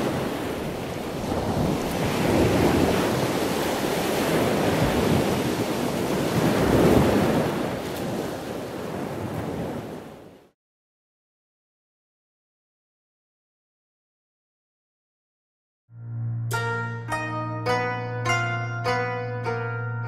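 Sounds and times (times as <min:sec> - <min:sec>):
ocean waves washing in: 0:00.0 - 0:10.6.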